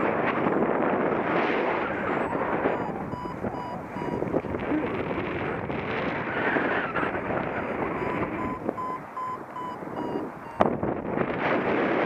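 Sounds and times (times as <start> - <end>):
wind on microphone: 0.0 - 12.0
variometer short beeps: 1.9 - 4.9, 6.9 - 11.0.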